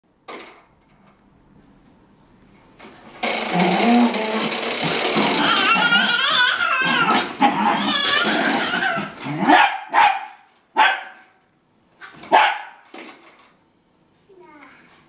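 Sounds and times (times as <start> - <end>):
toddler squealing: 5.2 - 9.2
dog barking: 9.5 - 11.3, 12.3 - 12.8.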